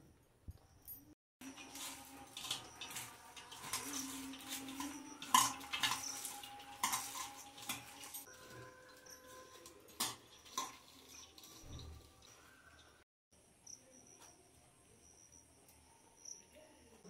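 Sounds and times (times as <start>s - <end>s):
hand mixing food in a bowl: 1.4s - 12.4s.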